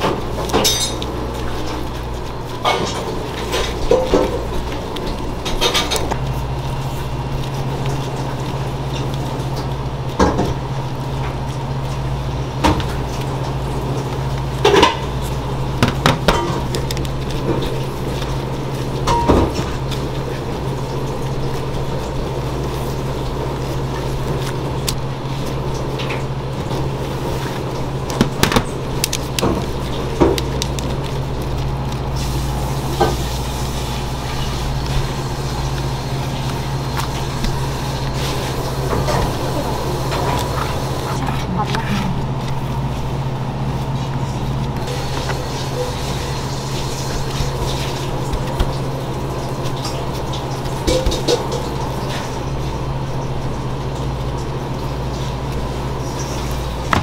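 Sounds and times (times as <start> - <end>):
metal pans and utensils clinking: 0.0 - 1.6, 2.6 - 4.7, 19.0 - 19.8, 49.8 - 52.4
steady hum: 0.0 - 57.0.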